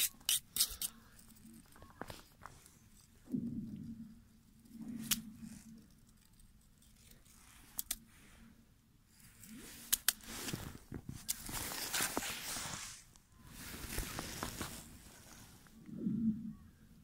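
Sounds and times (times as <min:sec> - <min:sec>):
ice crunching: 0:10.2 - 0:15.0.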